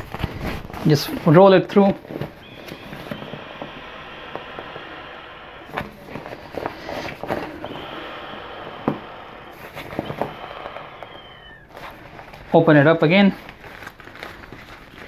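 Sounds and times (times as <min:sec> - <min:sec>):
vinyl bag crinkling and rustling: 0:00.0 - 0:02.4, 0:11.7 - 0:15.0
scattered crackles: 0:00.0 - 0:15.0
steady hiss: 0:02.2 - 0:13.4.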